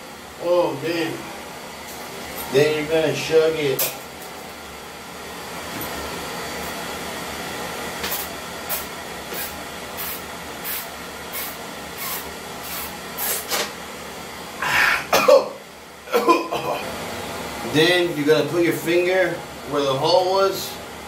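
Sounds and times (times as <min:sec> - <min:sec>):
beer can hissing: 0:08.7 - 0:13.6.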